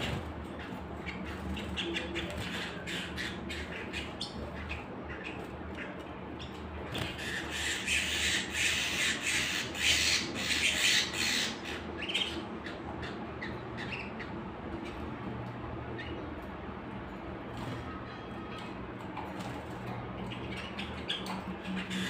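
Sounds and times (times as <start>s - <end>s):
canaries chirping: 0.0s - 22.0s
harsh squawky chatter: 0.0s - 22.0s
birds clicking on perches: 17.4s - 22.0s.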